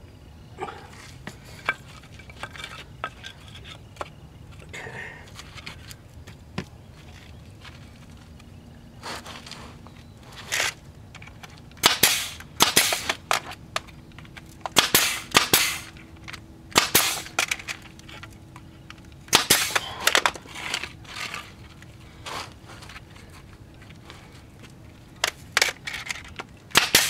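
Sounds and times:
nail gun shots with hiss: 11.8 - 13.2, 14.8 - 15.9, 16.8 - 17.4, 19.3 - 19.8, 26.7 - 27.0.

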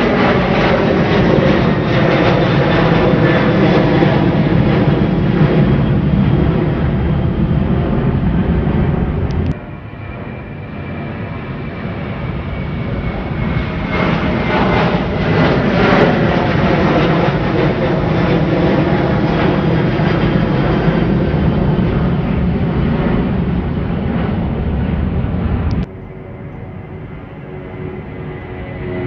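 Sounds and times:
jet engines roaring: 0.0 - 29.0.

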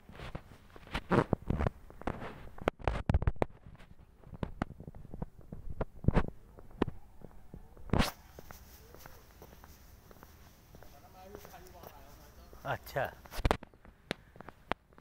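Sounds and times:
footsteps on concrete paving: 3.5 - 15.0.

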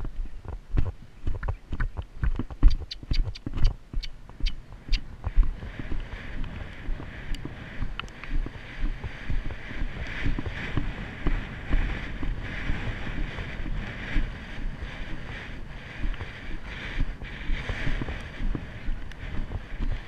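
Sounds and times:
horse hooves thudding on grass: 0.0 - 20.0
wind buffeting microphone: 0.0 - 20.0.

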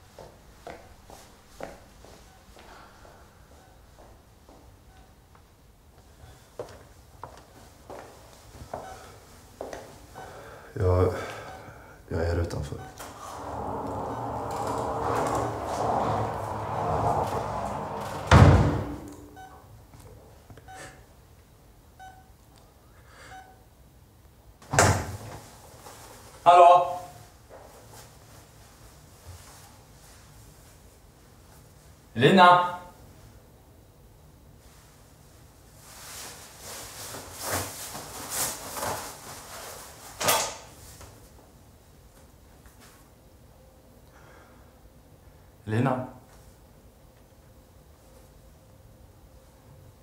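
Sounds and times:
patient monitor beeping: 2.2 - 5.4, 8.8 - 9.2, 10.1 - 10.6, 11.2 - 18.1, 18.9 - 19.7, 20.6 - 21.1, 22.0 - 22.4, 23.2 - 23.7
door shutting with thud: 13.0 - 19.3, 24.6 - 25.3
sudden loud noise: 13.0 - 19.4
jacket fabric rustling: 35.7 - 40.2.

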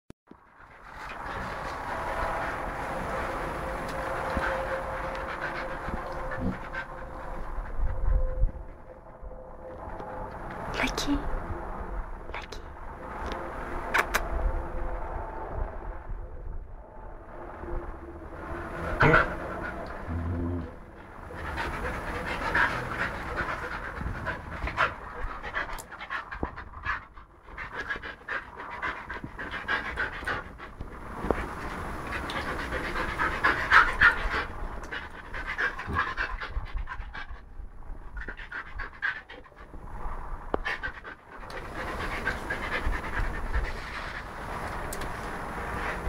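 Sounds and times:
dog panting hard: 0.6 - 8.8, 18.7 - 20.1, 20.9 - 46.0.

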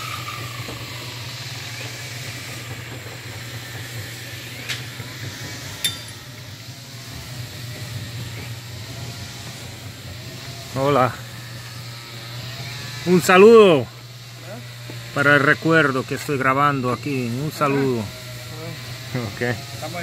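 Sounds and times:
building site hum and hiss: 0.0 - 20.0
metallic clinks: 5.8 - 6.3.

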